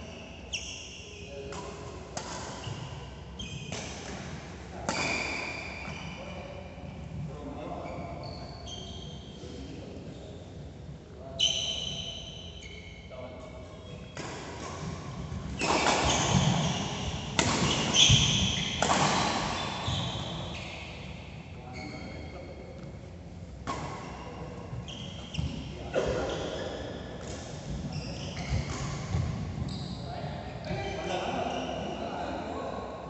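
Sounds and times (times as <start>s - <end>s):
racket hitting shuttlecock: 1.5s - 2.9s, 14.2s - 20.3s
shoes squeaking on court: 2.2s - 3.9s, 4.9s - 9.5s, 11.3s - 13.1s, 13.8s - 23.0s, 23.6s - 32.0s.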